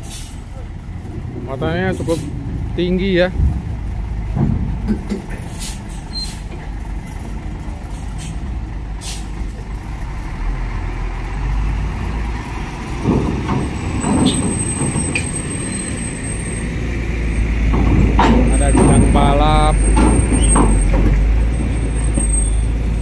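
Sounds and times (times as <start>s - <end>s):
air brake hisses: 0.0s - 0.4s, 5.5s - 6.5s, 9.0s - 9.4s
diesel truck engine: 0.0s - 23.0s.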